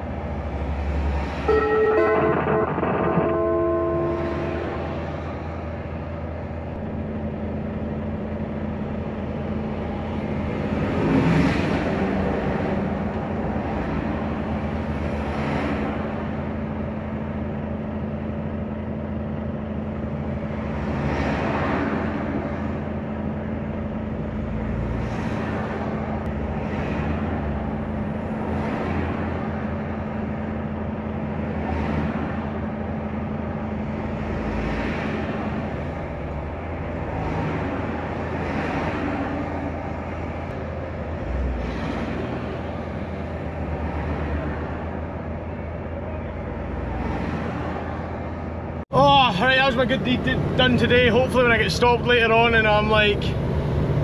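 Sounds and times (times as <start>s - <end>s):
vehicles passing by: 0.0s - 54.0s
truck diesel engine idling: 48.9s - 53.5s.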